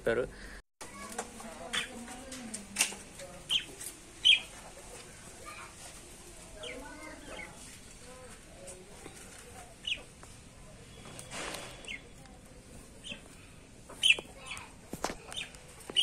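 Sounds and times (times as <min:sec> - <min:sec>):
chickens calling: 0:01.0 - 0:02.6, 0:03.2 - 0:10.2, 0:12.9 - 0:16.0.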